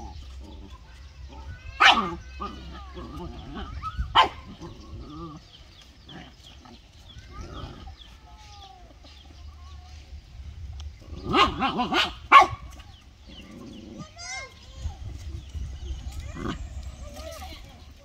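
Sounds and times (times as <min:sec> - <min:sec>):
dogs growling and yelping: 0:00.0 - 0:00.8, 0:01.7 - 0:08.2, 0:11.0 - 0:12.5, 0:13.2 - 0:14.2, 0:15.8 - 0:17.4
dog barking: 0:01.8 - 0:02.2, 0:04.1 - 0:04.6, 0:11.2 - 0:12.8.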